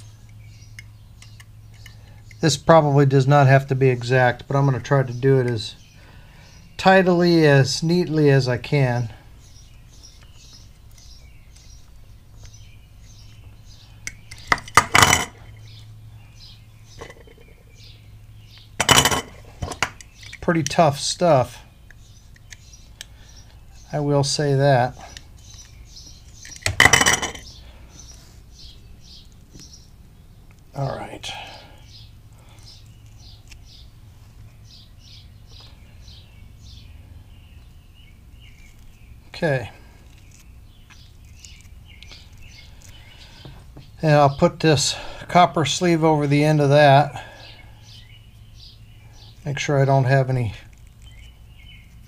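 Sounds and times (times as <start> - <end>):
bird chirping: 0.0 - 52.0
cable clattering on workbench: 14.5 - 15.4, 18.8 - 20.0, 26.6 - 27.4.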